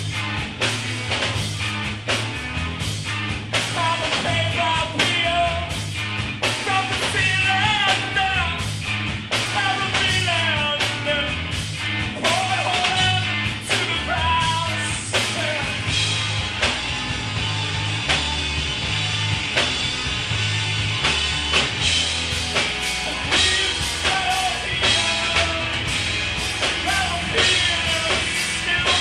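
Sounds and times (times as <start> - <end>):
bass line: 0.0 - 29.0
drums steady beat: 0.0 - 29.0
guitar: 0.0 - 29.0
rock band playing live: 0.0 - 29.0
lead singer singing: 3.6 - 5.8, 6.6 - 8.7, 9.4 - 11.5, 12.2 - 16.0, 23.0 - 29.0.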